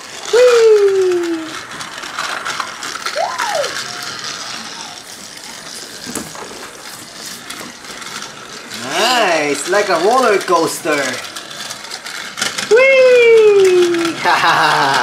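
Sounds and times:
toy train motor whirring: 0.0s - 15.0s
person crying out: 0.3s - 1.6s, 3.2s - 3.8s.

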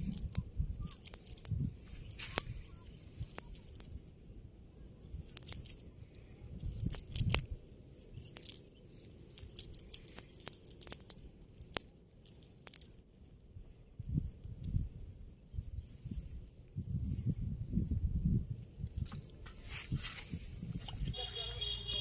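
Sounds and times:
net rustling and crinkling: 0.0s - 4.0s, 5.3s - 5.8s, 6.6s - 13.0s, 19.1s - 21.2s.

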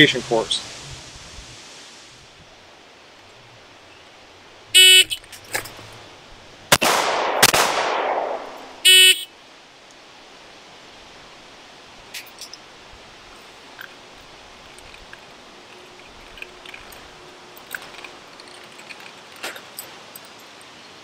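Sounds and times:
pistol shots: 6.7s - 8.7s.

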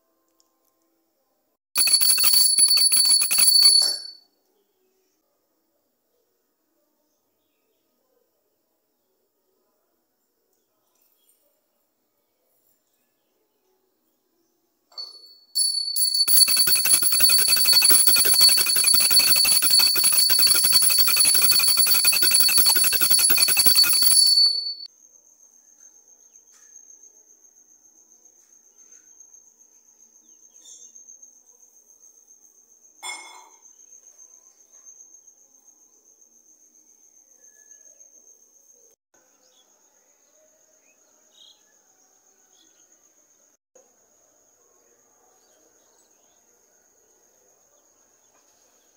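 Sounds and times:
cricket trill: 1.8s - 4.2s, 15.0s - 39.6s
handbell ringing rapidly: 1.8s - 4.2s, 15.6s - 24.9s.

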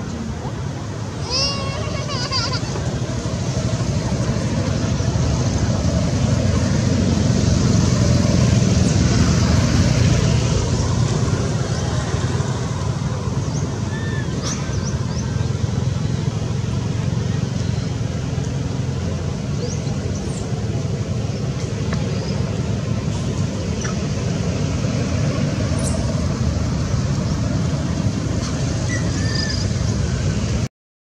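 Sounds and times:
low rumbling background noise: 0.0s - 30.7s.

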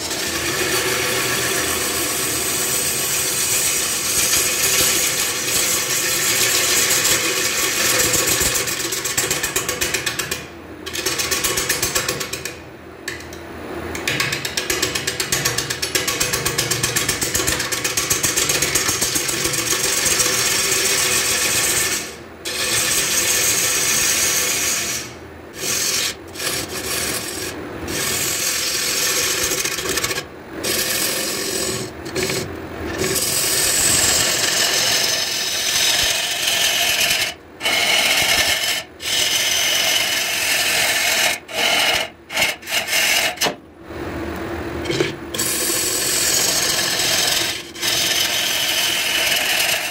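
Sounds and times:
lathe running: 0.0s - 7.8s, 19.8s - 42.0s, 45.4s - 49.9s
lathe tool cutting wood: 0.0s - 8.0s, 19.9s - 32.4s, 33.0s - 43.2s, 45.4s - 49.9s.

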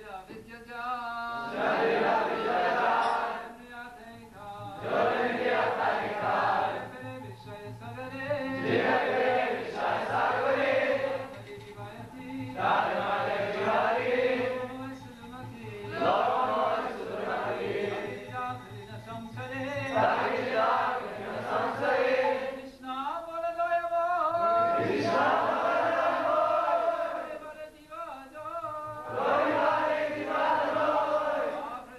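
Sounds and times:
group of voices chanting: 1.5s - 3.4s, 29.1s - 31.6s
steady beat: 4.6s - 22.4s.

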